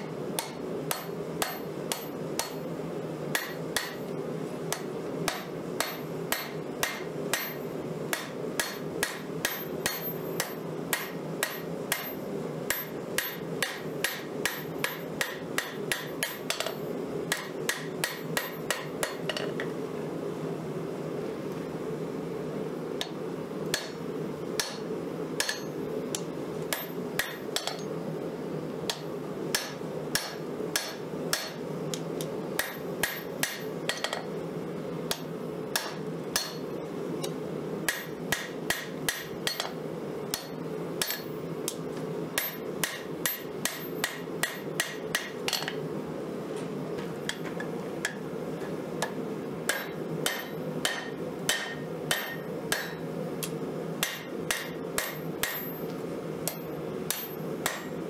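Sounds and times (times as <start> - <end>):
hammer striking metal on anvil: 0.4 - 2.6, 3.3 - 4.0, 4.7 - 19.5, 23.0 - 24.0, 24.6 - 25.8, 26.7 - 27.9, 28.9 - 31.6, 32.6 - 34.3, 35.1 - 36.7, 37.9 - 41.3, 42.4 - 45.8, 49.0 - 53.0, 54.0 - 55.8, 56.5 - 58.0.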